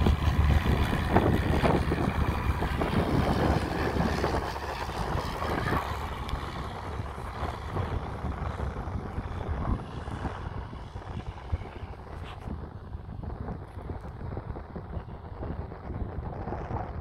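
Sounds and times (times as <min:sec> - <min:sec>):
propeller plane passing overhead: 0:00.0 - 0:17.0.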